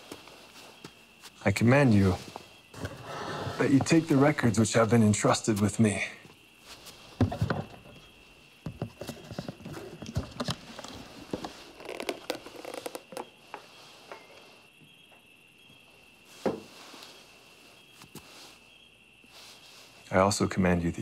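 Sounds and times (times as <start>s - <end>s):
wooden box set down: 7.2s - 8.0s, 8.6s - 13.3s.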